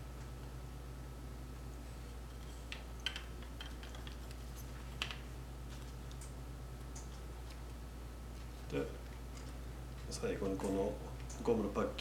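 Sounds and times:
steady low hum: 0.0 - 12.0
small clicks and rustles of handling: 2.3 - 7.8, 8.4 - 11.5.

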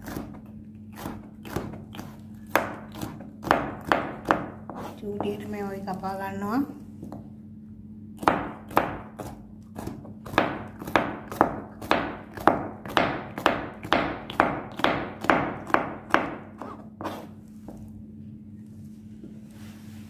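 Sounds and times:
knife chopping on cutting board: 0.0 - 5.4, 8.2 - 17.8.

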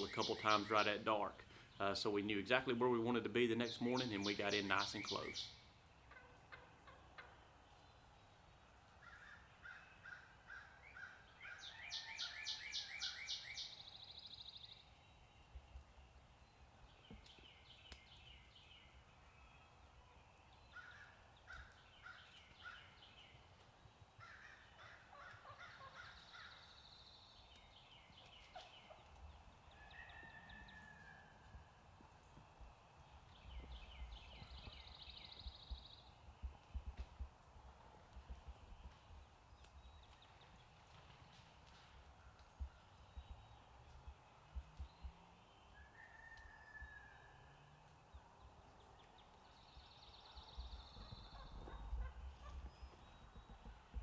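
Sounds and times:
songbirds singing: 0.0 - 54.0
turkey gobbling: 6.1 - 7.4, 24.3 - 26.5.

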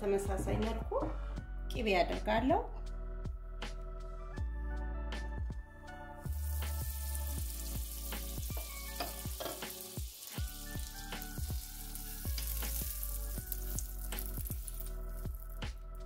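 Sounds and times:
background music with beat: 0.0 - 16.0
butter sizzling in pan: 6.2 - 15.6.

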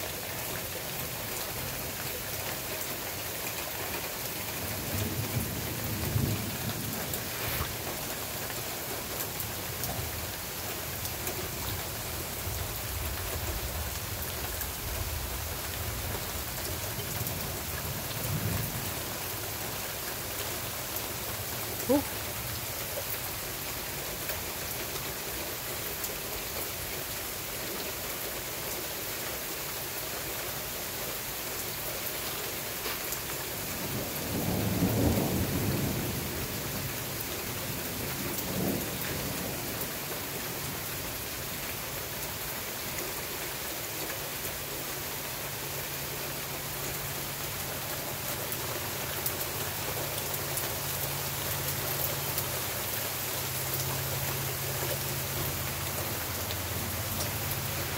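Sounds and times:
steady rain falling: 0.0 - 57.9
thunder rumbling: 33.8 - 40.0.

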